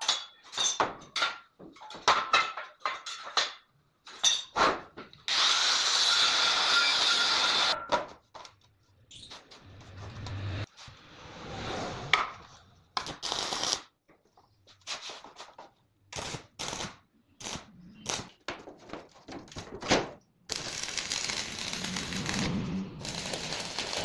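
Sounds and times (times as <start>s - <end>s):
arc welding crackle: 13.0s - 13.9s, 16.2s - 18.3s, 20.5s - 24.0s.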